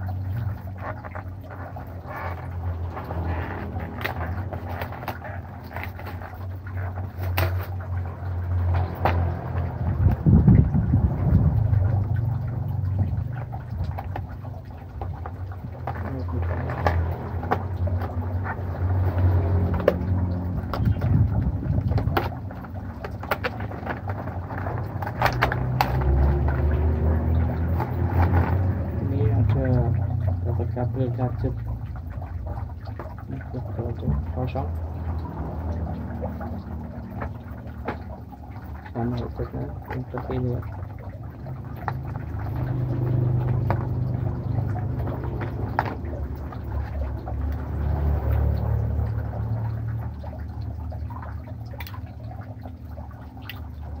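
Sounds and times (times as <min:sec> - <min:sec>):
steady low rumble: 0:00.0 - 0:39.8
low motor hum: 0:00.0 - 0:54.0.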